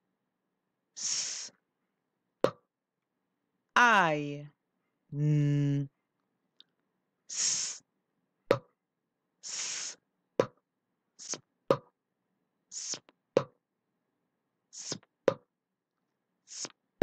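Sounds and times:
person hissing s sound: 1.0 - 1.6, 7.3 - 7.9, 9.4 - 10.0, 11.2 - 11.4, 12.7 - 13.1, 14.7 - 15.1, 16.5 - 16.8.

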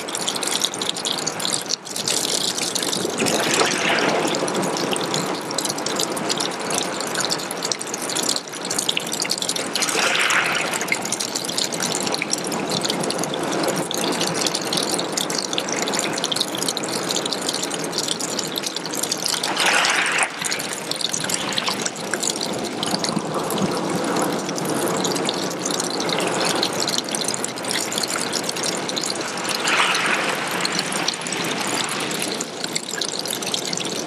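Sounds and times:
water splashing onto pebbles: 0.0 - 5.6, 9.1 - 12.4, 18.4 - 23.3, 26.5 - 34.0.

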